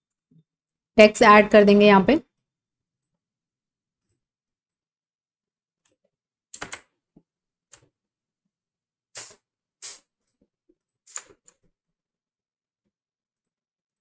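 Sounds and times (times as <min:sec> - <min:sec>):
mouse and keyboard clicks: 0:06.6 - 0:06.9, 0:11.1 - 0:11.6.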